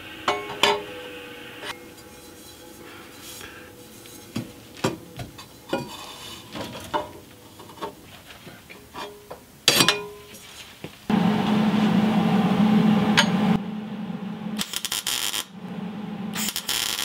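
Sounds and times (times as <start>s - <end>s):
loud ringing metal clank: 0.0s - 7.3s
metal pipes knocking and clinking: 0.3s - 1.0s, 1.7s - 8.1s, 8.7s - 10.3s.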